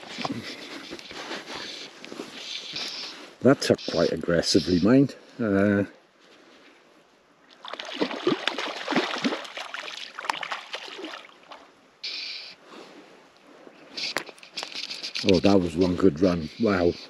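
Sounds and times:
short hissing bursts: 0:01.6 - 0:05.0, 0:12.0 - 0:12.6, 0:13.9 - 0:15.3
fish splashing in water: 0:07.5 - 0:11.7.

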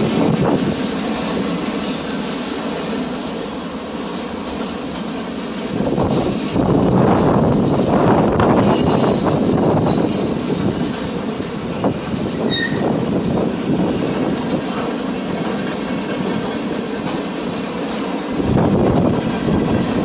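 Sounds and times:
train wheels rumbling on rail: 0:00.0 - 0:20.0
high wheel squeals: 0:08.6 - 0:10.5, 0:12.4 - 0:13.0.

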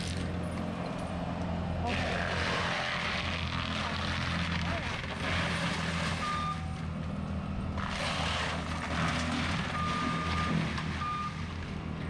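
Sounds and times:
loader with mower running: 0:00.0 - 0:12.0
wood crunching and splintering: 0:01.9 - 0:06.4, 0:07.8 - 0:11.8.

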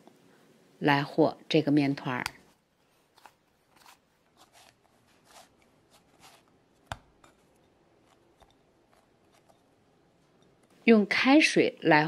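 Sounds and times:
hands kneading dough: 0:02.1 - 0:10.8.

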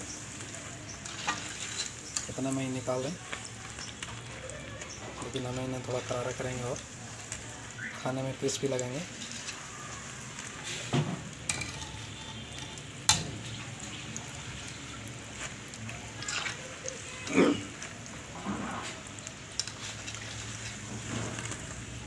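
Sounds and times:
food deep-frying in oil: 0:00.0 - 0:22.0
wire strainer scraping a pan: 0:00.9 - 0:02.6.

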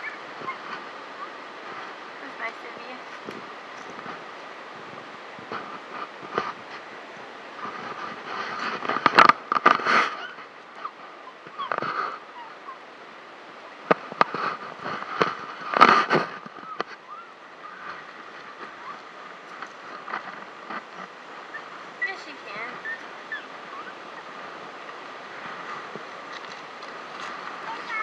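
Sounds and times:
crunching and rustling bursts: 0:00.0 - 0:28.0
ocean surf breaking: 0:13.7 - 0:28.0.

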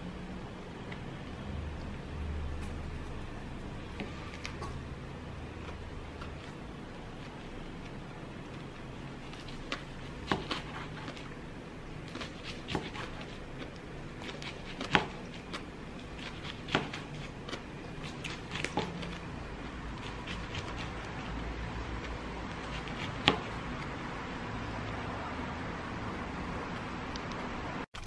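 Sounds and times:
knife cutting on cutting board: 0:09.3 - 0:11.2, 0:12.1 - 0:13.4, 0:14.2 - 0:15.6, 0:16.2 - 0:17.4, 0:18.0 - 0:19.2, 0:20.0 - 0:21.3, 0:22.5 - 0:23.6.

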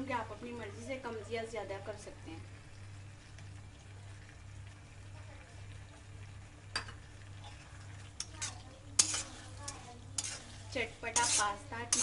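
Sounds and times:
food sizzling: 0:00.0 - 0:12.0
metal clinking on pan: 0:06.7 - 0:07.0, 0:08.2 - 0:10.5, 0:11.1 - 0:12.0
spatula stirring in pan: 0:07.1 - 0:12.0.

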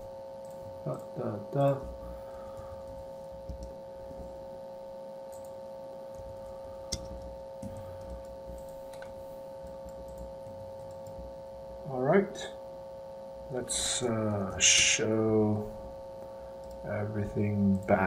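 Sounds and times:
steady electrical hum: 0:00.0 - 0:18.0
computer mouse clicks: 0:01.7 - 0:04.3, 0:05.3 - 0:11.2, 0:16.6 - 0:16.8.

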